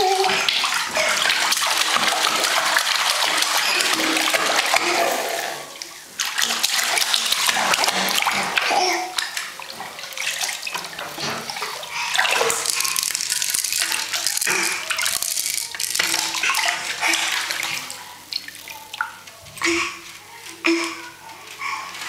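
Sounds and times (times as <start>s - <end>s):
bathwater splashing: 0.0s - 22.0s.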